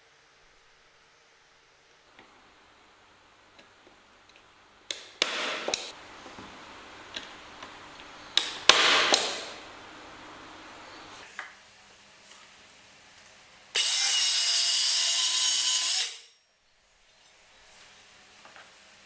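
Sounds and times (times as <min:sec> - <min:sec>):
staple gun firing: 0:04.9 - 0:05.9, 0:08.4 - 0:09.6.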